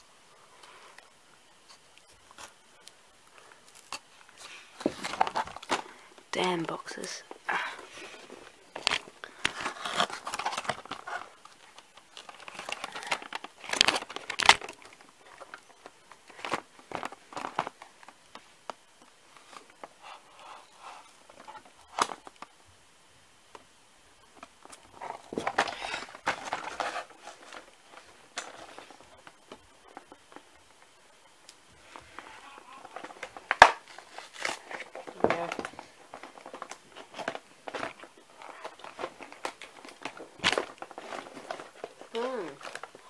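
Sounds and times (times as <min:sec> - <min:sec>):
cardboard rustling and crinkling: 0:03.3 - 0:22.6, 0:23.5 - 0:43.0
cardboard tearing: 0:08.7 - 0:15.5, 0:32.2 - 0:43.0.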